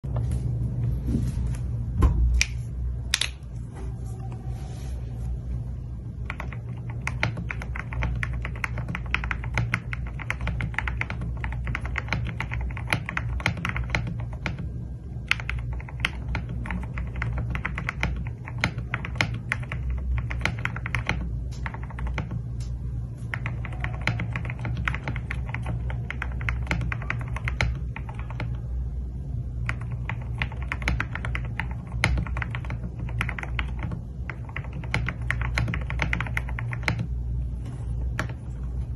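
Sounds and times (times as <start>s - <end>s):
mechanical keyboard typing: 6.2s - 28.7s, 29.6s - 37.2s, 38.0s - 38.6s.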